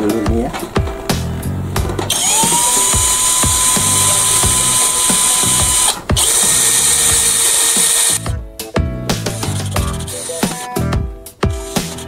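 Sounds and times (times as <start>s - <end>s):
cordless drill whining: 2.1s - 8.2s.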